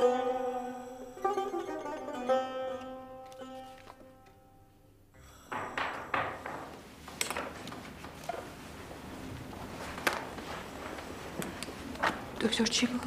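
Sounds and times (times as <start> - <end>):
footsteps on hard floor: 5.5 - 12.3
person getting up from seat: 5.9 - 12.3.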